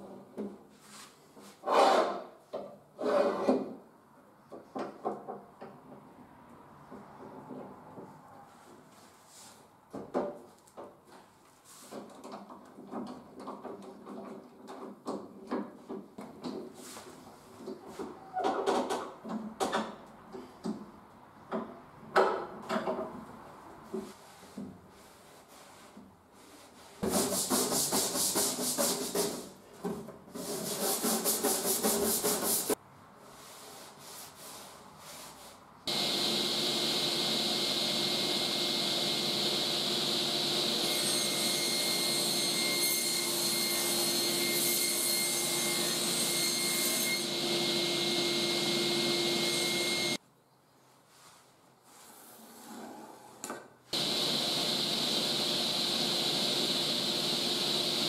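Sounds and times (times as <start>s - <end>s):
hand tool rubbing on wood: 24.1s - 29.5s, 30.4s - 32.8s
circular saw running: 35.9s - 40.9s, 54.0s - 58.0s.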